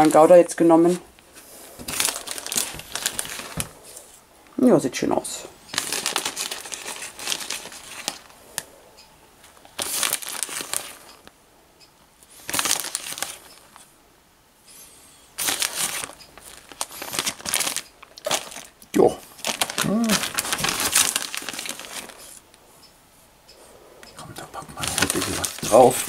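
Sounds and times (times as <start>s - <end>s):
plastic bag crinkling: 0.0s - 1.0s, 1.6s - 3.8s, 5.7s - 8.4s, 9.6s - 11.3s, 12.4s - 13.8s, 15.4s - 22.5s, 24.6s - 26.0s.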